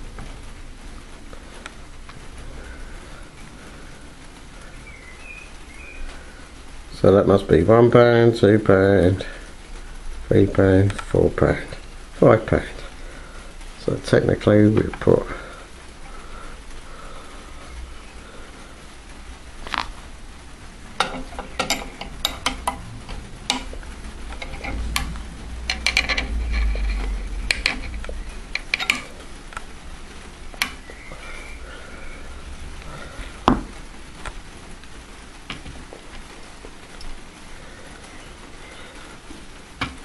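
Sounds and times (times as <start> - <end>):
metallic clicks and rattles: 20.9 - 29.7
low rumble: 22.2 - 35.0.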